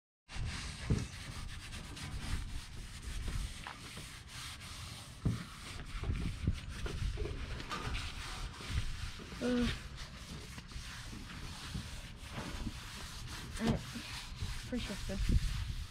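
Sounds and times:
wind rumble on microphone: 0:05.6 - 0:09.8, 0:13.5 - 0:15.9.

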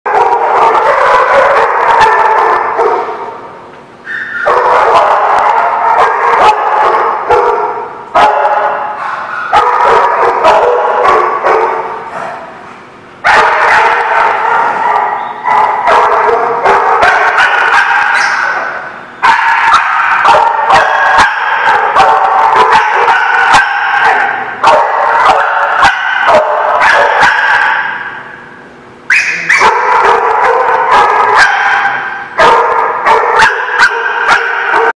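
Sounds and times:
dogs barking and yipping: 0:00.1 - 0:03.3, 0:04.0 - 0:12.6, 0:13.2 - 0:34.9.

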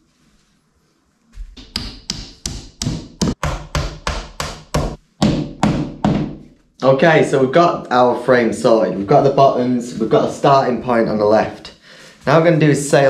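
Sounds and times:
hammer driving nail into wood: 0:01.6 - 0:06.4.

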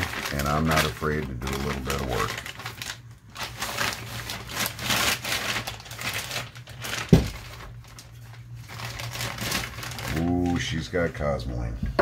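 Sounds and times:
plastic bag crinkling: 0:00.0 - 0:10.9.

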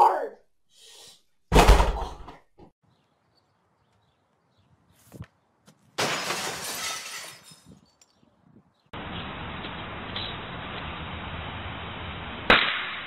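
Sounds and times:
glass shattering: 0:06.0 - 0:07.8.

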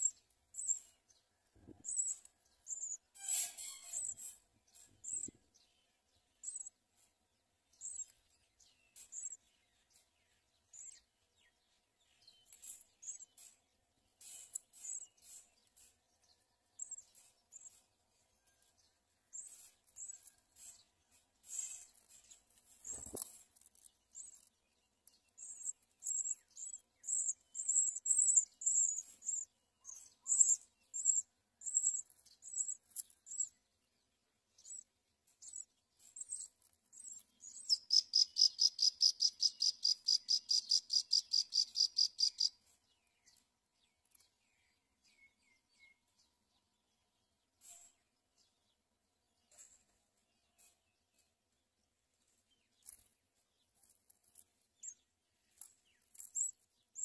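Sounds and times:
nestling sparrows cheeping: 0:00.0 - 0:57.0
fast pulsed bird trill: 0:37.5 - 0:42.6.

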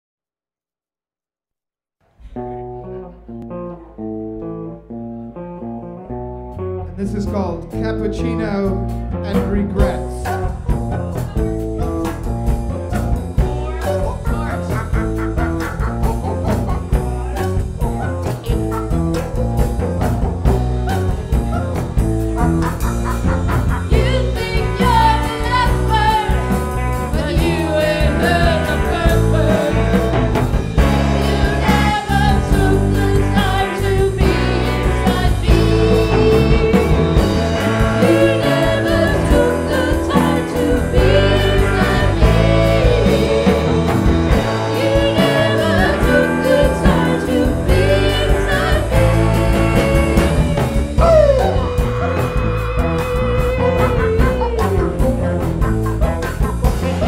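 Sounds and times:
guitar playing: 0:02.1 - 0:57.0
person singing: 0:22.7 - 0:55.4, 0:56.8 - 0:57.0.

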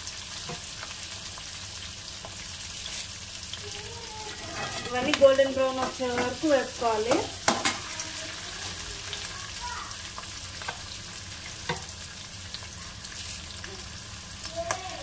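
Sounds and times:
food sizzling in hot oil: 0:00.0 - 0:15.0
metal spoon scraping pan: 0:04.2 - 0:07.9.

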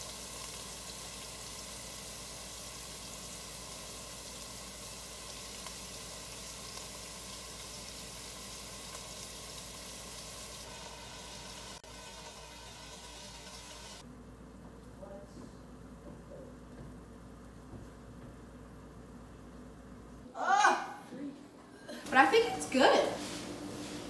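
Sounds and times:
meat sizzling in a pot: 0:00.0 - 0:14.0.

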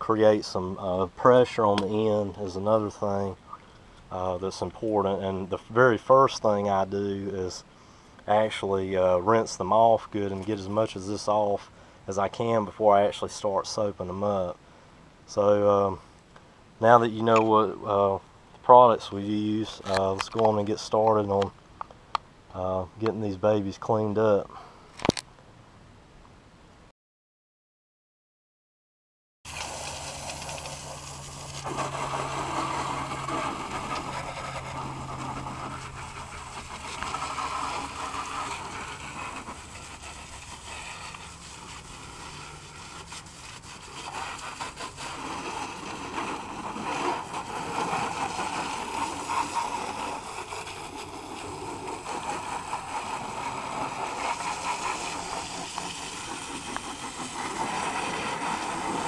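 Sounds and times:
hose spraying water: 0:29.5 - 0:59.0.

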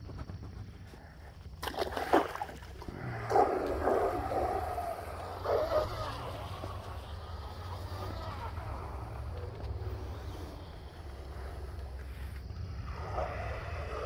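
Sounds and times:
rc boat motor whine: 0:02.8 - 0:14.0.

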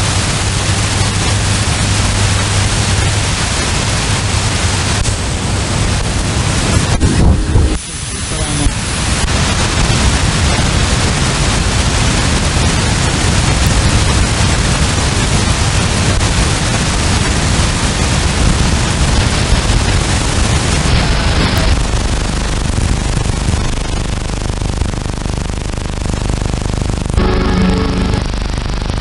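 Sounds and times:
radio static hiss: 0:00.0 - 0:29.0.

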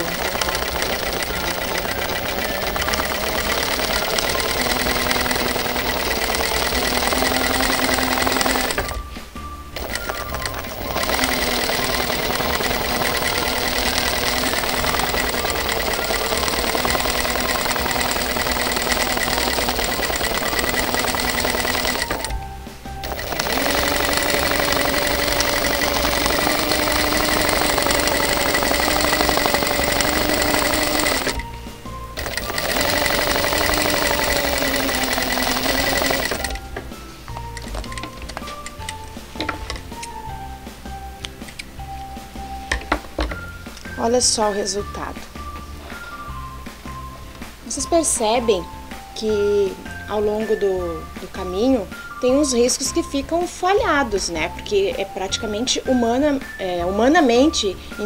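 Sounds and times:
sewing machine running: 0:00.0 - 0:09.0, 0:09.8 - 0:31.5, 0:32.1 - 0:36.7.

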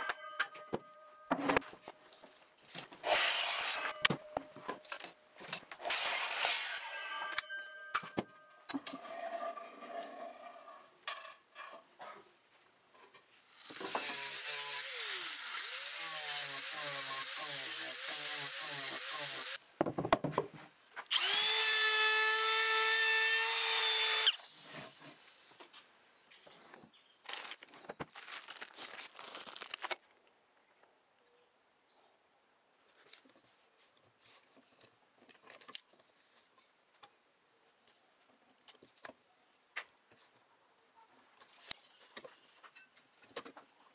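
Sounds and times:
power tool whining: 0:03.0 - 0:08.3, 0:13.6 - 0:19.6, 0:21.1 - 0:24.6.

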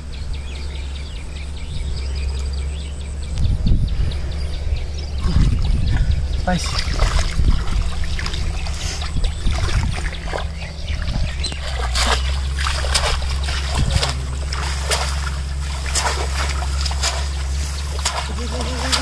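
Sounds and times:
steady low rumble: 0:00.0 - 0:19.0
water splashing and sloshing: 0:05.1 - 0:19.0.

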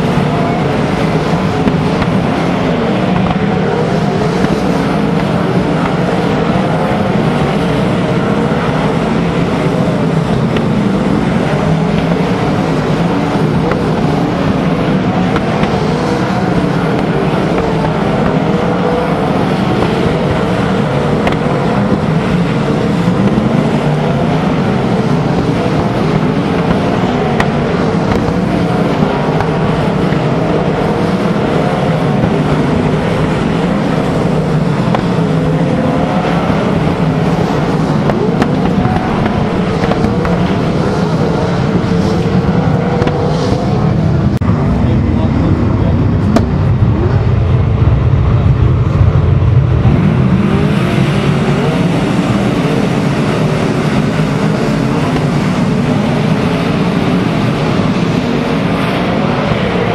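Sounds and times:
racing car engines: 0:00.0 - 0:59.9.

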